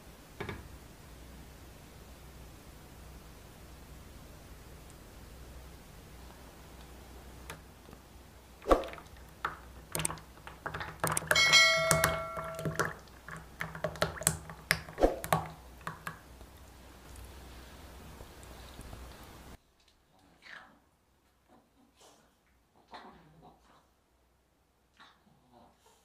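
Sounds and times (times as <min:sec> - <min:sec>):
spatula knocking glass bowl: 0:11.0 - 0:13.0.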